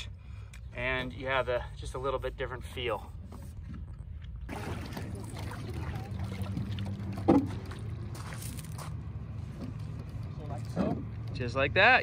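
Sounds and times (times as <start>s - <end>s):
light water sounds: 3.9s - 10.8s
canoe hull bump: 7.2s - 7.7s.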